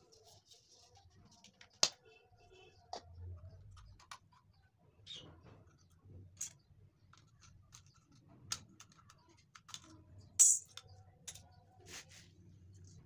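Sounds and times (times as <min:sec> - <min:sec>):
plastic housing clicks and scrapes: 0:06.4 - 0:11.4.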